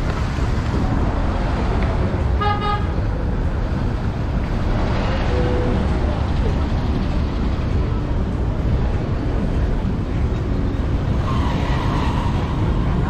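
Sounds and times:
road traffic noise: 0.0s - 13.0s
vehicle horn toot: 2.4s - 3.0s.

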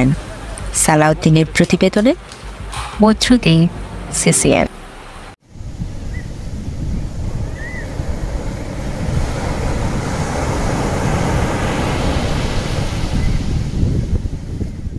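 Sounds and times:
ocean surf: 0.0s - 14.9s
wind: 0.0s - 14.9s.

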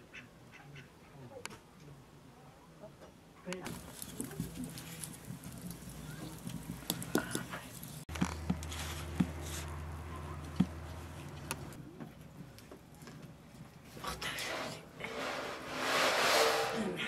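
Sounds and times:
wood fire crackling: 3.6s - 15.8s.

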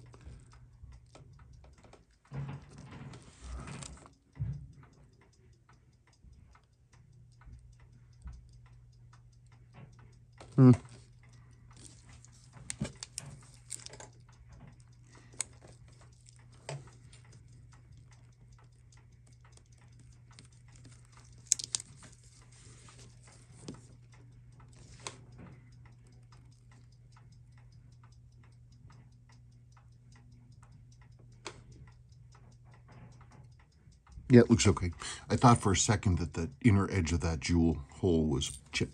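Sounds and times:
low steady hum: 0.0s - 38.9s
clock ticking rapidly: 3.6s - 38.9s
tweezers clicking on metal parts: 3.8s - 23.5s.

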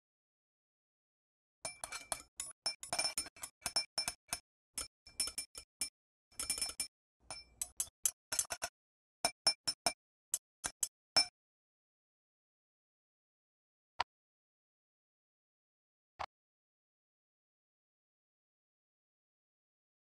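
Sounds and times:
palette knife clinking on glass bowl: 1.7s - 11.3s.

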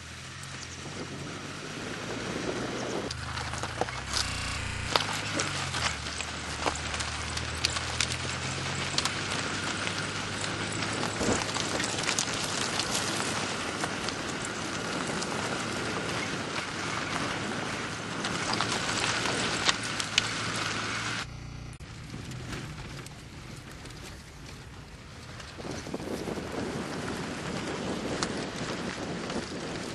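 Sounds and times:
faint engine hum: 0.0s - 29.7s
car tyres crunching on gravel: 1.8s - 29.9s
stones ticking against car body: 3.1s - 15.0s.

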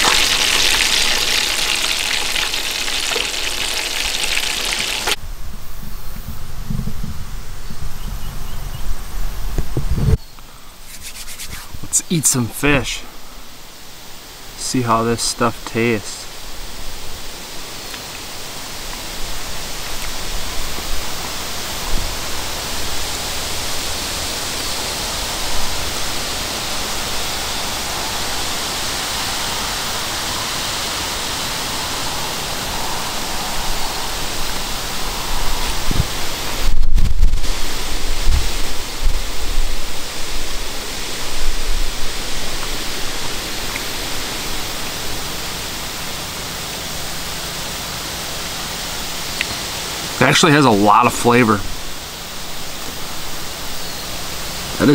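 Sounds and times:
rushing wind: 0.0s - 14.6s, 16.2s - 46.4s
wind buffeting microphone: 2.6s - 10.2s, 32.7s - 42.6s.

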